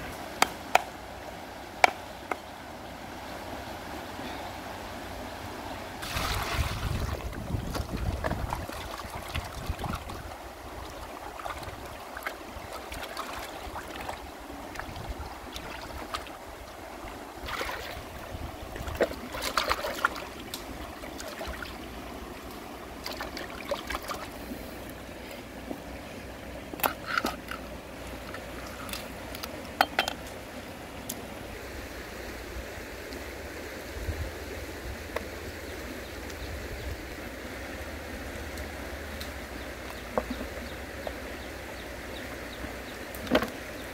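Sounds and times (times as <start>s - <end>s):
river running over stones: 0.1s - 43.9s
water splashing in a pot: 6.0s - 10.2s.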